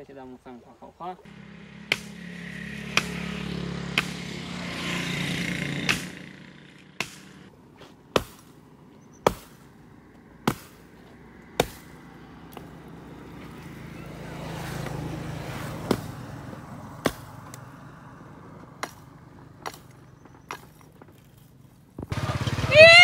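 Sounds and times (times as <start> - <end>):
axe chopping stump: 1.8 - 4.6, 5.8 - 8.6, 9.2 - 9.7, 10.4 - 11.0, 11.6 - 12.8, 14.8 - 17.7, 18.7 - 21.1.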